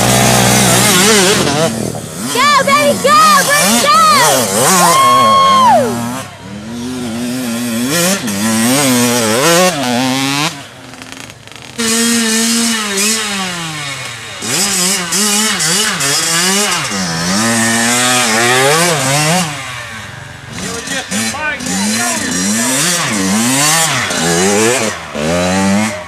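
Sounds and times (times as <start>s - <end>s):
dirt bike engines revving: 0.0s - 26.0s.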